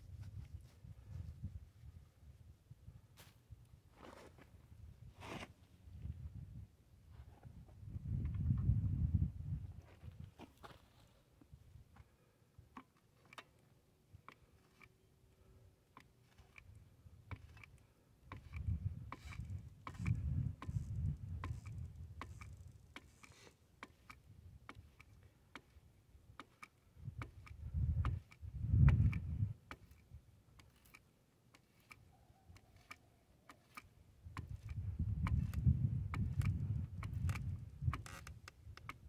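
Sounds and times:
grease gun clicking: 0:21.4 - 0:25.8, 0:26.4 - 0:35.6.

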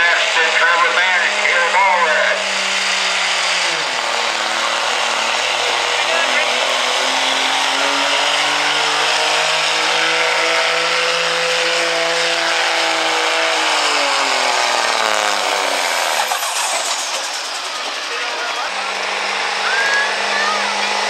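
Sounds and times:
diesel pickup engine at full throttle: 0:00.0 - 0:21.0.

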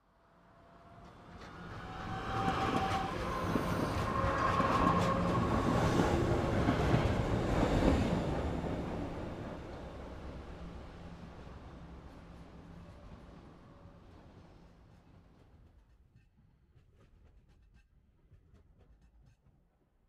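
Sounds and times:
tram rumbling past: 0:00.4 - 0:15.4.

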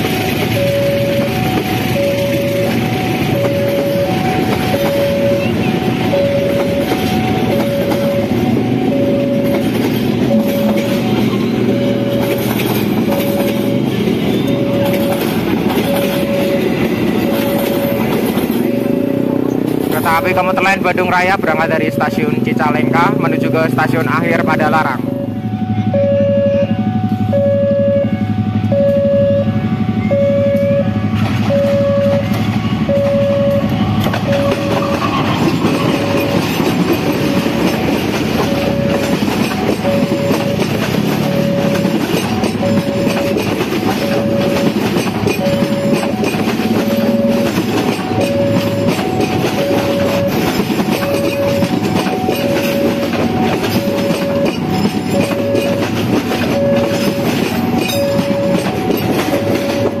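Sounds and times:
train wheels clattering on rails: 0:00.0 - 0:25.1, 0:29.8 - 1:00.0
level crossing alarm beeping: 0:00.0 - 1:00.0
locomotive running past: 0:00.0 - 1:00.0.

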